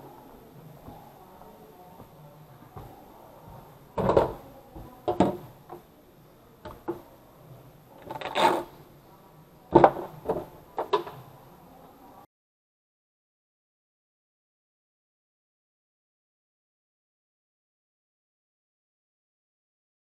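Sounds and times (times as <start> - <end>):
plastic scraping on tabletop: 8.0 - 8.8.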